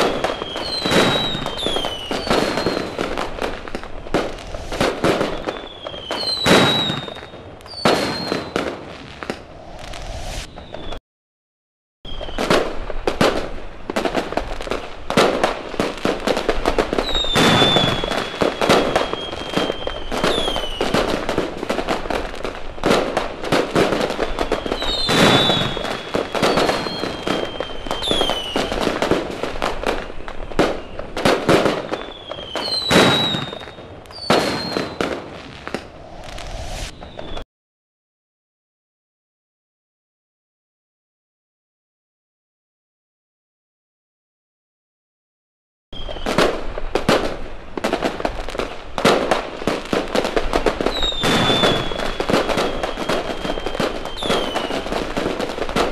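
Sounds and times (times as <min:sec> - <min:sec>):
fireworks bangs and crackling: 0:00.0 - 0:11.0, 0:12.1 - 0:37.4, 0:46.0 - 0:55.9
fireworks whistles sliding down: 0:00.0 - 0:11.0, 0:12.1 - 0:12.7, 0:17.0 - 0:21.3, 0:23.6 - 0:37.4, 0:46.0 - 0:46.5, 0:50.6 - 0:55.5.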